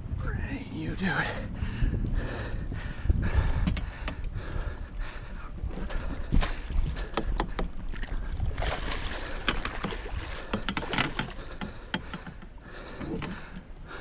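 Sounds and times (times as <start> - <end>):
water slapping against a hull: 3.3 - 14.0
fish thrashing and splashing: 5.8 - 13.4.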